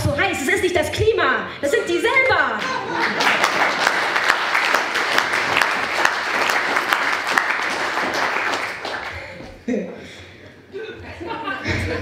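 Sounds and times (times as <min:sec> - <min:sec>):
audience applause: 0:02.6 - 0:09.4.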